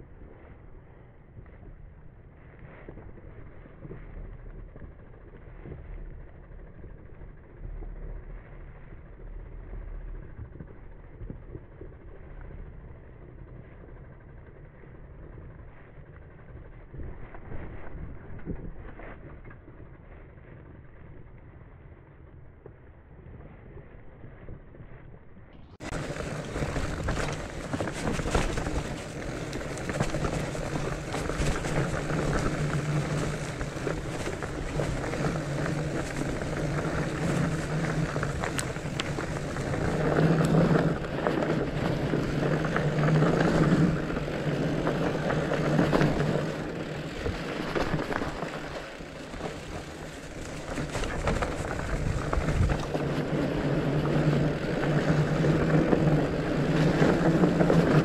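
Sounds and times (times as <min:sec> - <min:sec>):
bike rattling over bumps: 0:00.0 - 0:58.0
wind rushing over microphone: 0:23.3 - 0:58.0
tyres rolling over dry leaves: 0:25.8 - 0:58.0.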